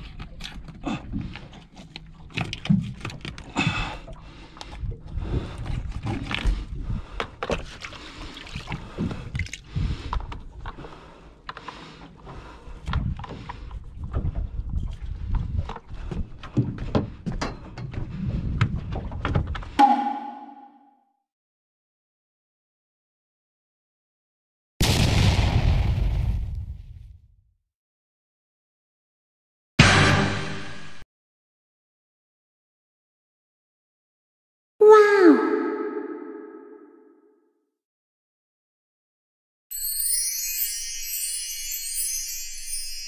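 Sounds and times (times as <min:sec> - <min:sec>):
knocks and clatter on boat: 0:12.8 - 0:19.8.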